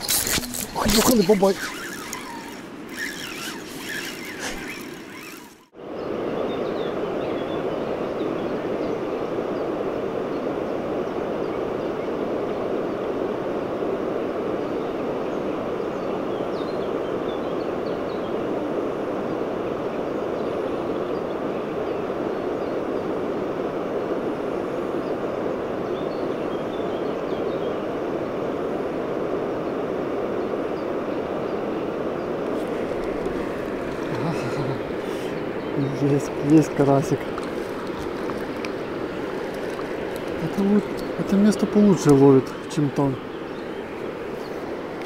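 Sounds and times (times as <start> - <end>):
fishing reel rustling and clicking: 0.0 - 5.7, 36.3 - 41.2
river water rushing: 0.0 - 5.7, 32.4 - 45.0.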